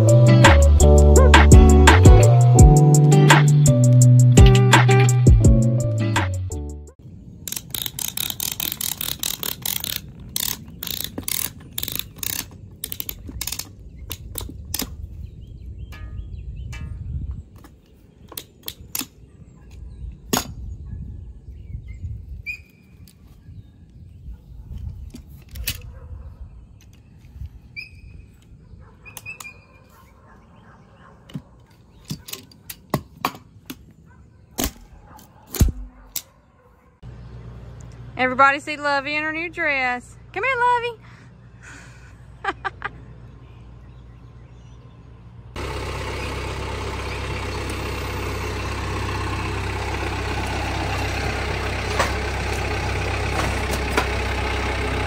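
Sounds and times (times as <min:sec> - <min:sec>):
strapping tensioner ratcheting: 0:07.4 - 0:14.9.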